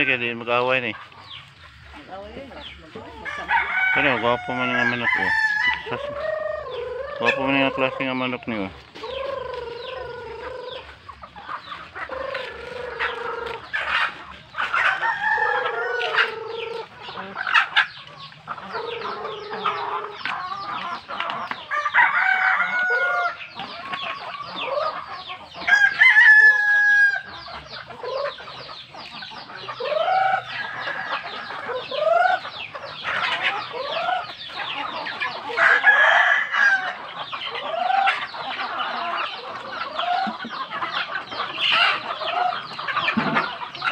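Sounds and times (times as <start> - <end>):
chickens clucking: 0.0 - 43.9
rooster crowing: 3.2 - 7.5, 14.9 - 16.6, 21.7 - 23.4, 25.7 - 27.3, 35.5 - 37.0.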